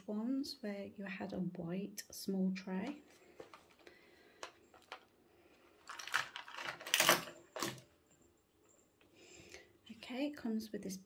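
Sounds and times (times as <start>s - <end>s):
plastic tools clattering on table: 4.4s - 5.1s, 5.8s - 7.9s.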